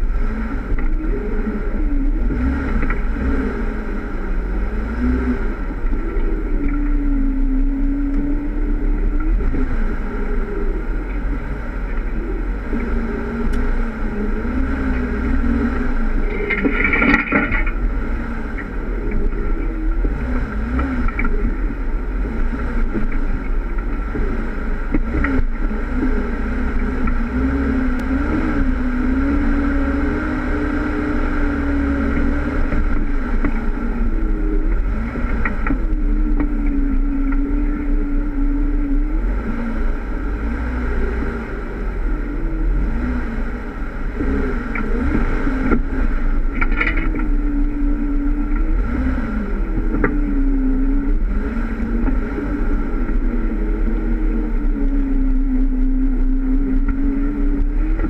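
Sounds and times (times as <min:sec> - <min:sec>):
car engine running: 0:00.0 - 0:58.0.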